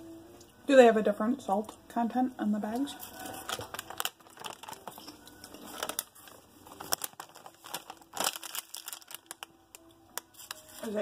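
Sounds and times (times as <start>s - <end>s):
foil chip bag crinkling: 3.0s - 11.0s.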